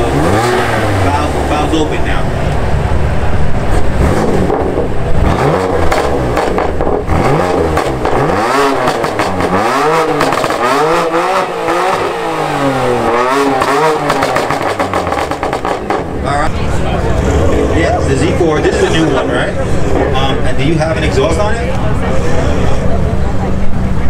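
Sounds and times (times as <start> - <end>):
car engine revving in blips: 0.0 - 19.0.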